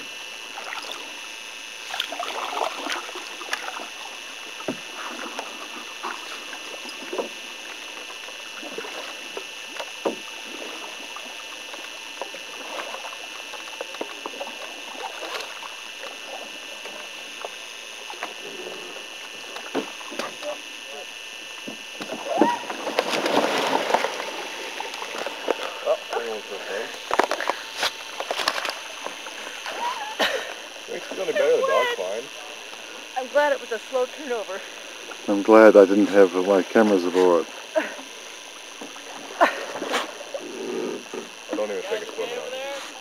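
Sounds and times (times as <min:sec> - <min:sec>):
steady high whine: 0:00.0 - 0:43.0
paddles dipping in water: 0:00.5 - 0:01.1, 0:01.8 - 0:18.4, 0:21.7 - 0:30.8
water splashing off blades: 0:21.8 - 0:31.2.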